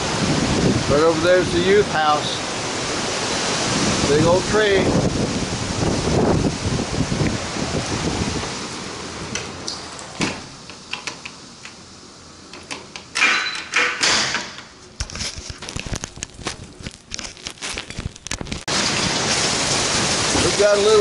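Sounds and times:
storm wind and rain: 0.0s - 21.0s
glass door closing knock: 10.2s - 10.5s.

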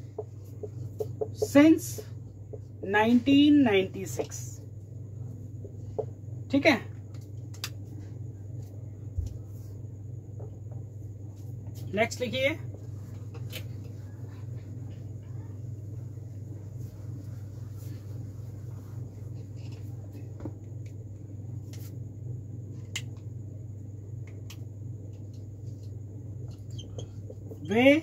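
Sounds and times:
marker tapping and scratching: 0.0s - 2.8s, 25.2s - 27.8s
low electrical hum: 0.0s - 28.0s.

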